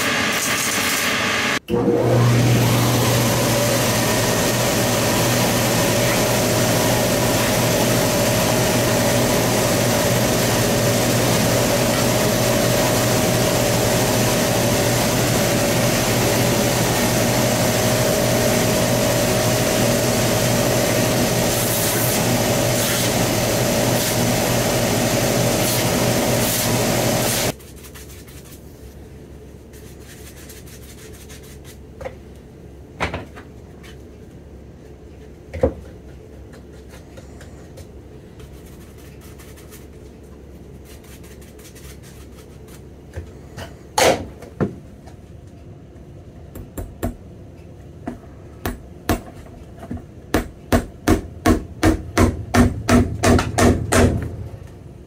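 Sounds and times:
shoe finishing machine motor: 0.0 - 27.5.

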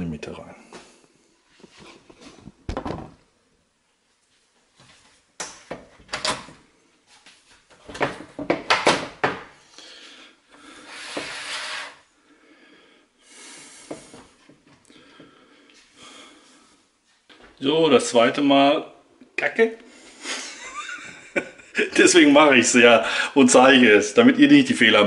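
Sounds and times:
plastic scraping rub: 10.8 - 12.0.

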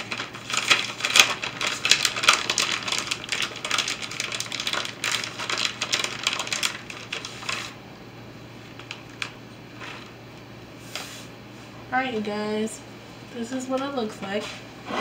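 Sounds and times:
plastic bag crinkling: 0.0 - 7.8, 8.6 - 10.2.

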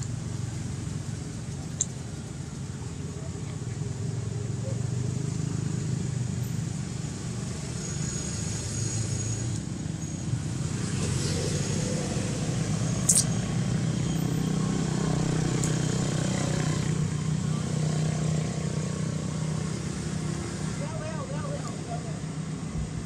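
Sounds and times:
vehicle engines rumbling: 0.0 - 23.0
sharp click: 13.0 - 13.3.

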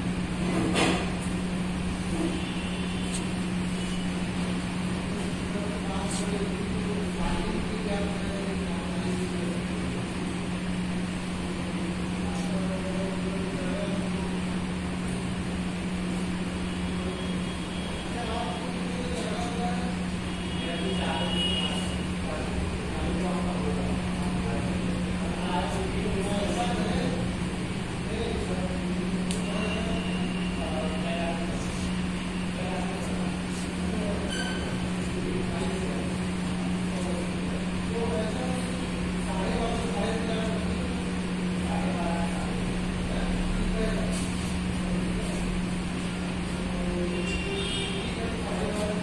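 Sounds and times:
mechanical hum: 0.0 - 49.0
click: 29.2 - 29.4.

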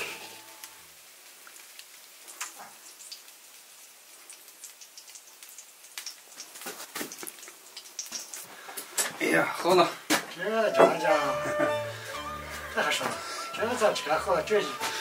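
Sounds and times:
faint crackling and ticking: 0.0 - 9.1.

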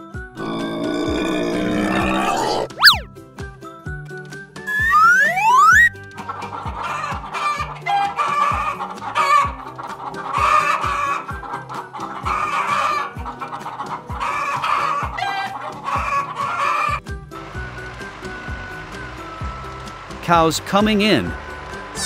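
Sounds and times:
hens clucking: 4.9 - 17.0.

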